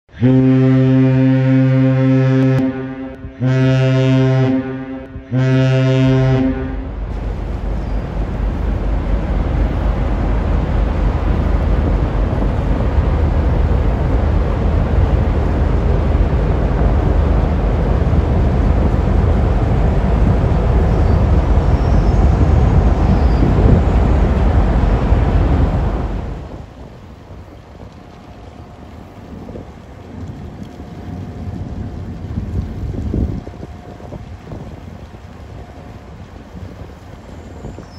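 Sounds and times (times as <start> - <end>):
ship horn blasts: 0.1 - 12.6
wind on microphone: 0.3 - 37.9
low rumble: 0.5 - 37.9.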